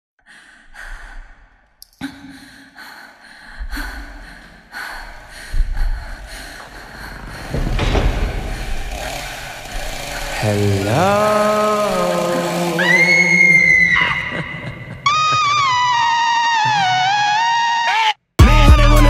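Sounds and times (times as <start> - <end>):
person breathing and sighing: 0.2 - 10.5
deep booms: 5.6 - 10.8
dark droning music: 6.0 - 15.0.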